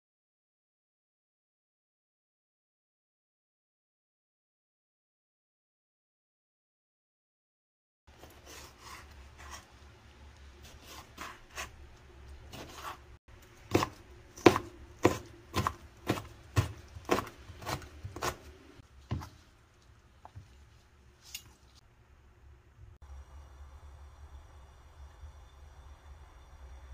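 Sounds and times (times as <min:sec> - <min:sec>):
knife chopping on cutting board: 0:12.5 - 0:13.0, 0:13.6 - 0:19.4.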